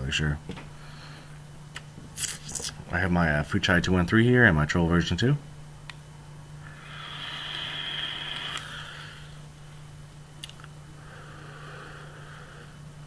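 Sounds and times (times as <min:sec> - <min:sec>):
vape coil sizzling: 0:06.7 - 0:09.4
soft breathy exhale: 0:11.0 - 0:12.8.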